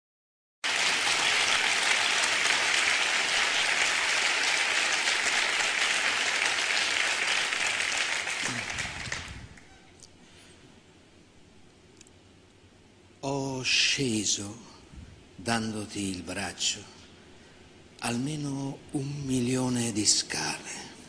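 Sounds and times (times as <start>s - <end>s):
studio audience applauding: 0.6s - 9.8s.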